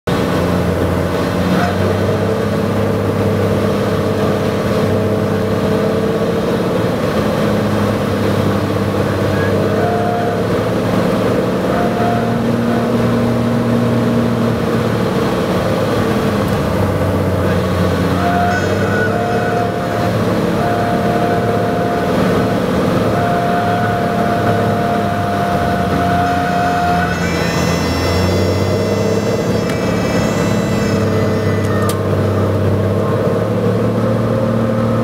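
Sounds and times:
plane engine and propeller droning: 0.1 - 35.0.

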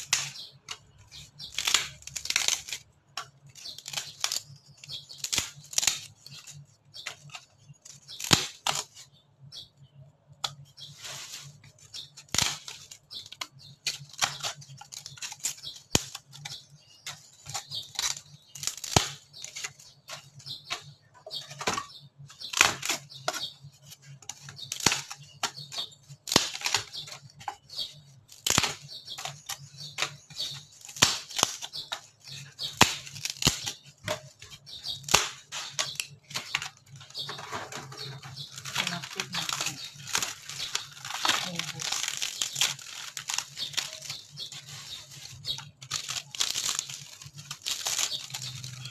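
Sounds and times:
ceiling board snapping: 1.4 - 9.0, 12.2 - 23.5, 24.2 - 44.6.

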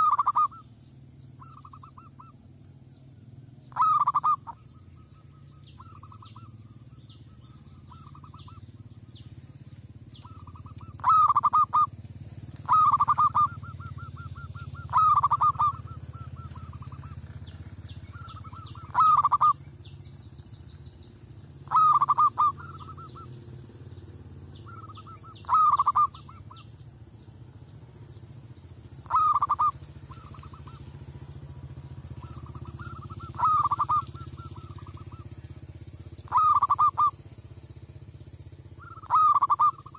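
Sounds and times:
dove cooing: 0.0 - 0.7, 1.4 - 2.4, 3.7 - 8.8, 10.1 - 19.8, 21.5 - 23.4, 24.5 - 26.8, 28.8 - 37.4, 38.7 - 39.9.

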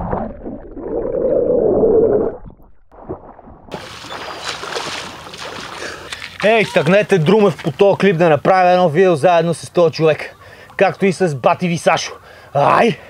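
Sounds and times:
person swimming splashing: 3.7 - 8.2.

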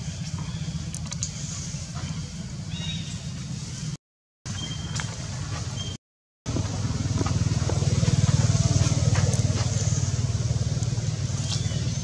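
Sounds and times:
small engine running: 6.5 - 12.0.

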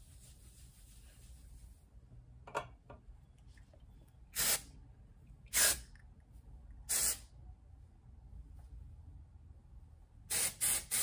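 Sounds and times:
aerosol spray bursts: 4.4 - 4.7, 5.5 - 5.8, 6.9 - 7.3, 10.3 - 11.0.

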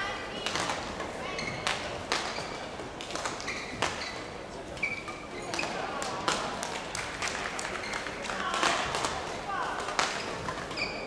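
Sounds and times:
shoe squeak on court floor: 2.3 - 2.6, 3.4 - 5.8, 10.2 - 11.0.

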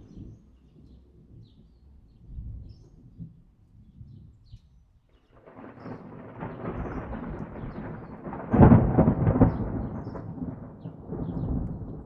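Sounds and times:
thunder rumbling: 5.4 - 12.0.

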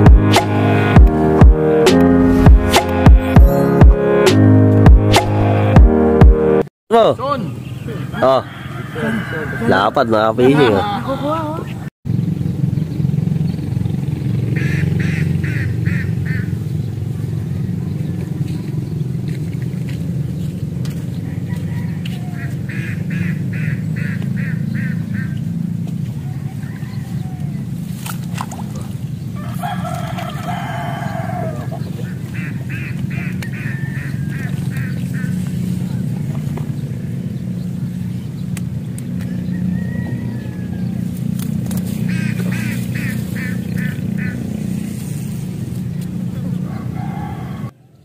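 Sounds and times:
low drone: 0.0 - 6.7
rooster crowing: 7.9 - 11.0, 21.2 - 22.6, 26.2 - 27.8, 29.4 - 32.0, 33.1 - 35.3, 39.2 - 41.3, 46.6 - 48.0
bird calling: 14.5 - 19.0, 20.4 - 27.9, 28.6 - 45.1.

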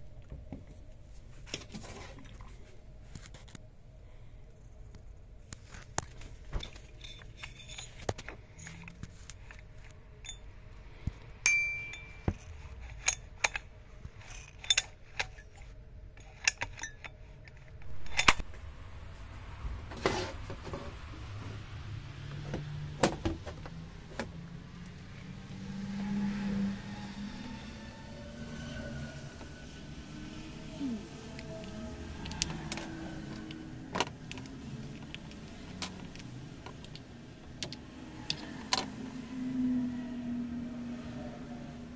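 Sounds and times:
low hum: 0.0 - 41.9
metallic clinks of tools: 11.5 - 13.6.

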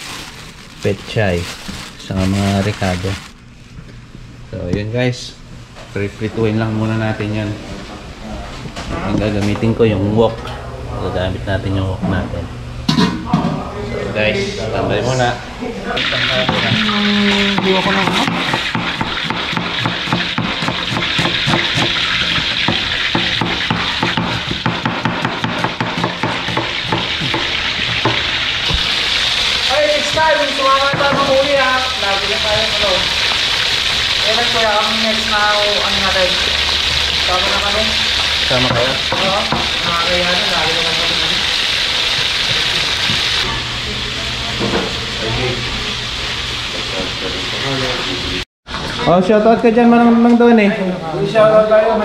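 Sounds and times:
fish sizzling in hot oil: 0.0 - 0.6, 16.0 - 43.5.

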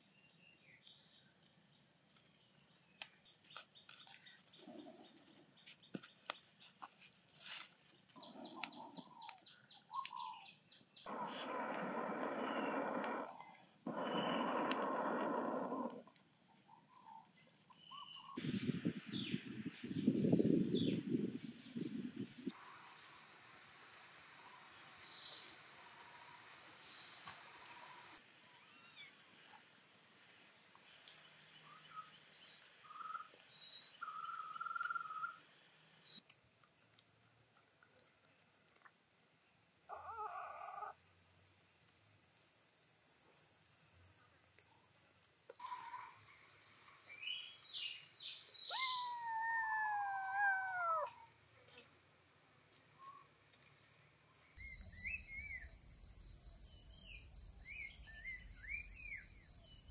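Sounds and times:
insects droning: 0.0 - 59.9
kitten mewing: 48.7 - 51.2.

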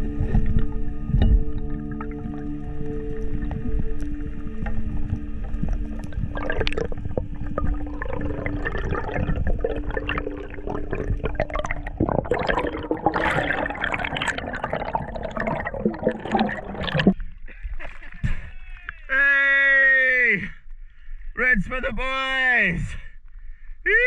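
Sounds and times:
water sloshing and bubbling: 0.0 - 18.2
low steady hum: 0.0 - 18.9.

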